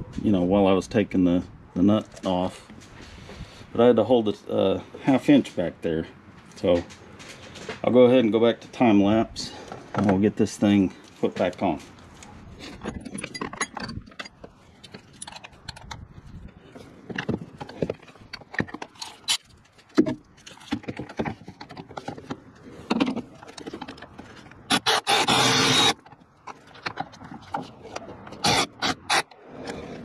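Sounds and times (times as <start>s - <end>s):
tools clicking and clattering: 12.6s - 16.1s
cordless ratchet running: 24.7s - 26.0s.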